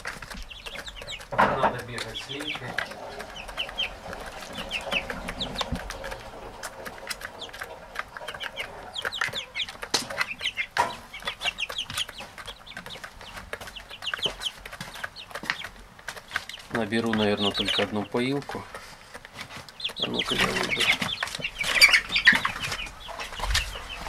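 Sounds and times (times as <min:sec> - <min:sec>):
sharp clicks and taps: 0:00.0 - 0:21.6
chickens cheeping and clucking: 0:00.0 - 0:24.0.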